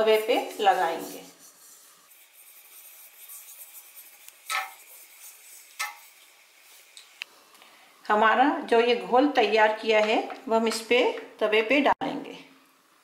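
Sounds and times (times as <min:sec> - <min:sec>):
rubbing scrapes: 0:00.0 - 0:06.9
faint steady hiss: 0:00.0 - 0:13.0.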